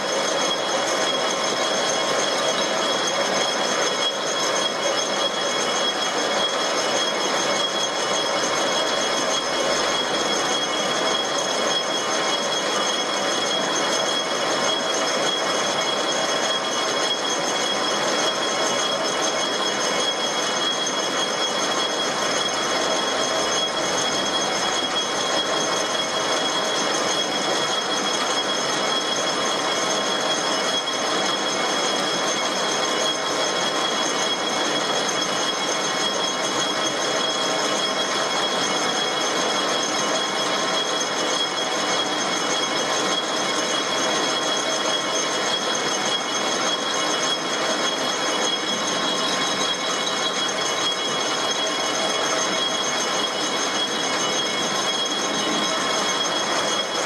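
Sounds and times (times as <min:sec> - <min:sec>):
metal lathe hiss and whine: 0:00.0 - 0:57.0.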